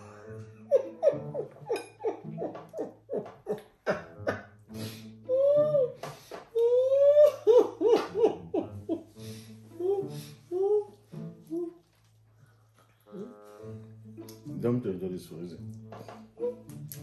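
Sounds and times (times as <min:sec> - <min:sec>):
woman laughing through hand: 0:00.0 - 0:04.6, 0:06.6 - 0:09.2
woman squealing: 0:05.3 - 0:06.0, 0:06.6 - 0:08.3.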